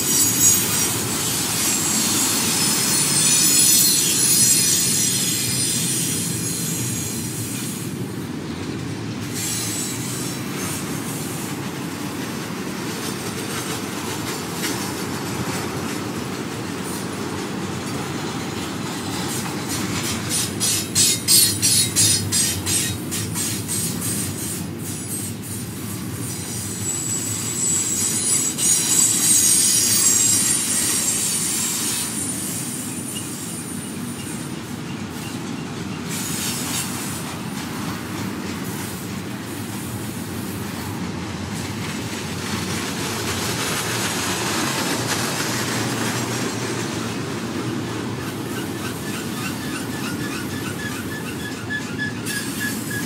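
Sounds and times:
high-pitched wheel squeal: 0:00.0 - 0:07.4, 0:26.3 - 0:34.5, 0:48.2 - 0:53.0
steel wheels rumbling on rail: 0:00.0 - 0:53.0.

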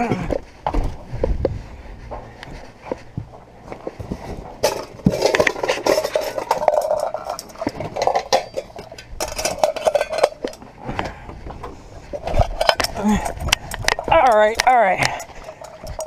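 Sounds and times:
metal cookware clinking: 0:04.6 - 0:10.6.

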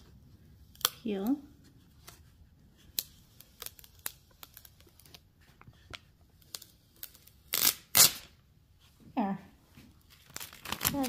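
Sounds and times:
tape peeling crackles: 0:00.7 - 0:01.3, 0:02.0 - 0:08.4, 0:10.0 - 0:11.0.

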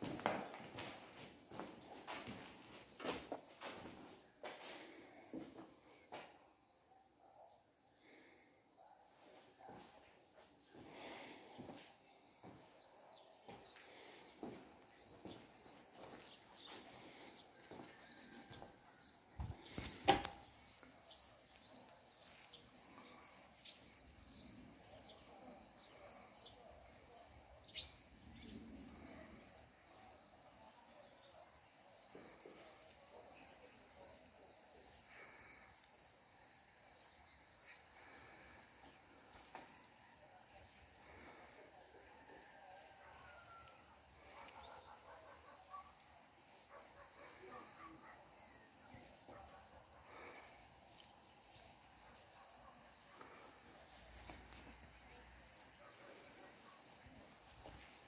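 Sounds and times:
cricket chirping: 0:14.3 - 0:58.0.

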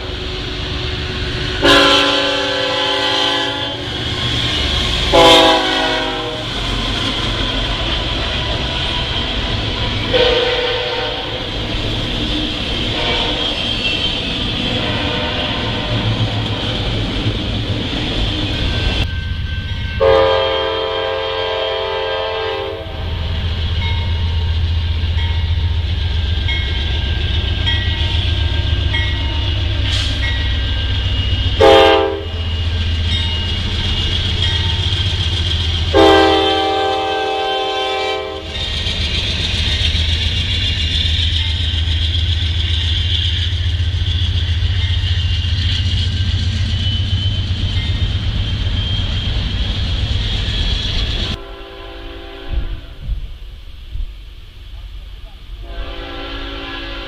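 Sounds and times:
low rumble of train: 0:00.0 - 0:57.0
train wheels on rails: 0:00.0 - 0:57.0
locomotive air horn blasts: 0:01.5 - 0:04.0, 0:05.1 - 0:06.6, 0:10.1 - 0:11.5, 0:12.9 - 0:13.5, 0:14.8 - 0:16.0, 0:20.0 - 0:23.2, 0:31.6 - 0:32.4, 0:35.9 - 0:38.5, 0:51.4 - 0:53.1, 0:55.6 - 0:57.0.

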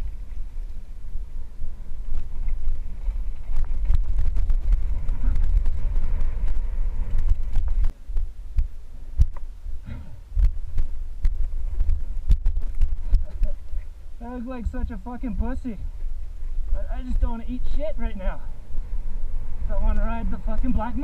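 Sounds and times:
wind rumble on microphone: 0:00.0 - 0:21.0
bike knocking and rattling on rocks: 0:02.0 - 0:09.5.

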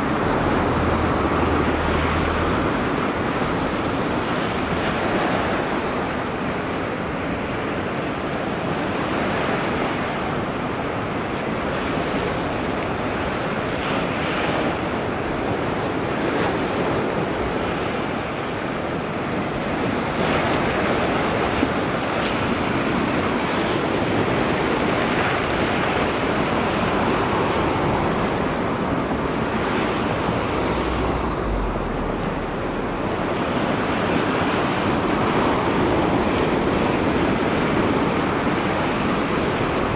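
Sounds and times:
waves breaking on sandy shore: 0:00.0 - 0:39.9
wind buffeting microphone: 0:19.2 - 0:39.9
low rumble: 0:30.3 - 0:33.5.

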